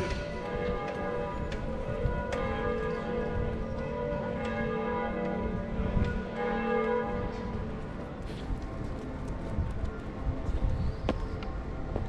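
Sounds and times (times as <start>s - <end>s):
church bells ringing: 0.0s - 9.3s.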